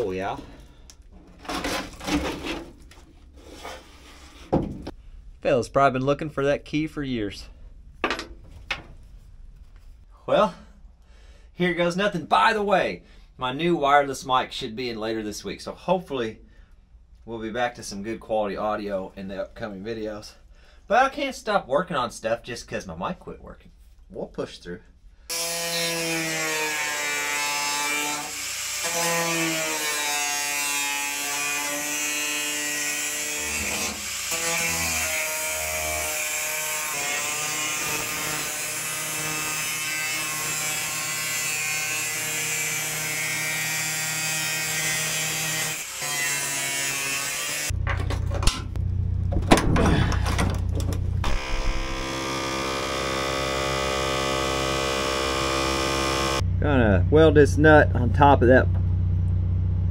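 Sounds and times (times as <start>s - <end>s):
angle grinder cutting metal: 25.3s - 47.8s, 51.2s - 56.4s.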